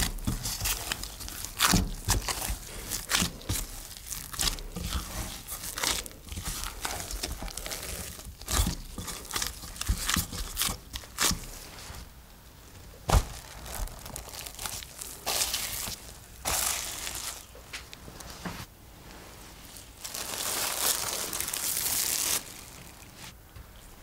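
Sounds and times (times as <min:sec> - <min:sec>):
hands kneading sticky dough: 0:00.0 - 0:24.0
cling film crinkling: 0:13.1 - 0:18.3, 0:19.6 - 0:23.4.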